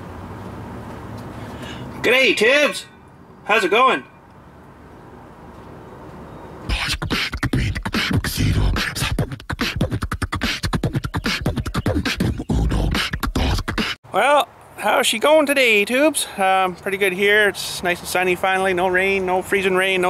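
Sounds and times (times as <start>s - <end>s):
beatboxing: 6.7s - 14.0s.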